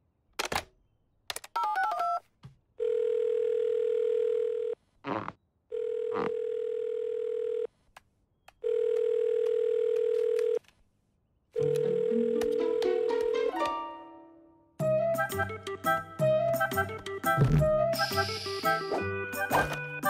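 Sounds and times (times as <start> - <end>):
telephone ringback tone: 5.7 - 7.7, 8.6 - 10.6, 11.6 - 13.1.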